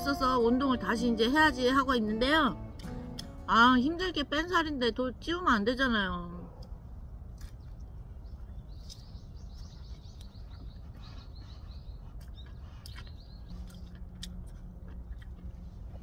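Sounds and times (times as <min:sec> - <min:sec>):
low outdoor rumble: 0:00.0 - 0:16.0
small bird chirping: 0:07.6 - 0:14.4.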